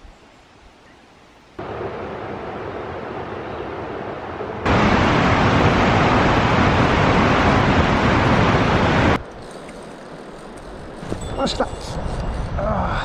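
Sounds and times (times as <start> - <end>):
stream rushing over rapids: 1.6 - 9.4
flowing water: 1.6 - 11.0.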